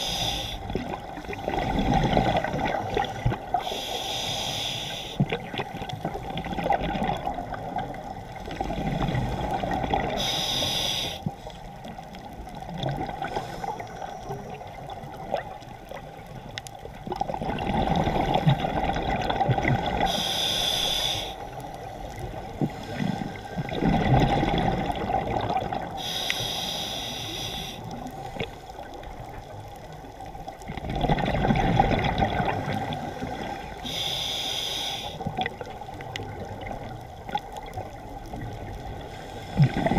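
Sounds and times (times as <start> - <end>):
diver inhaling through regulator: 0.0 - 0.7, 3.5 - 5.3, 9.1 - 11.4, 20.0 - 21.6, 25.9 - 28.5, 33.0 - 35.3
exhaled bubbles rushing: 0.7 - 3.6, 5.2 - 10.2, 17.0 - 20.1, 23.0 - 26.0, 30.6 - 33.8, 39.6 - 39.9.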